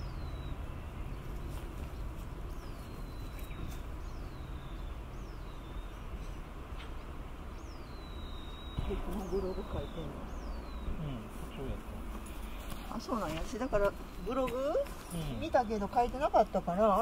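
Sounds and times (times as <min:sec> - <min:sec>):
low rumble: 0:08.7 - 0:12.7.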